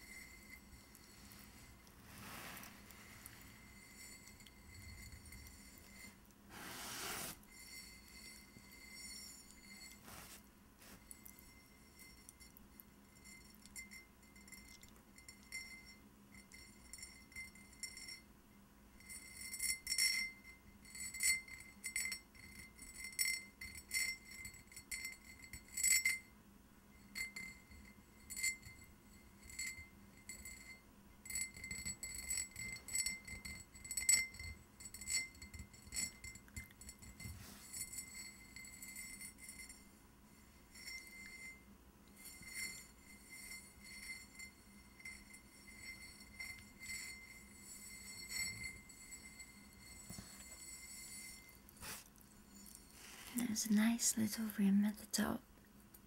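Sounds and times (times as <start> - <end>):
fingernails scratching a glazed vase: 0.4 - 11.4.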